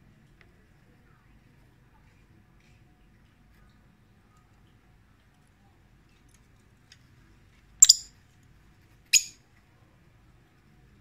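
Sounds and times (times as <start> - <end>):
lovebird chirping: 7.8 - 8.2, 9.1 - 9.4.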